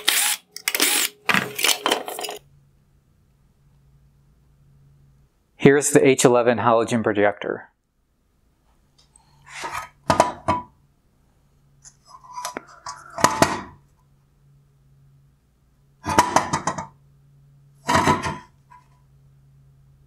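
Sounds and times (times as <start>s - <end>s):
plastic parts clattering on wood: 0.6s - 2.4s.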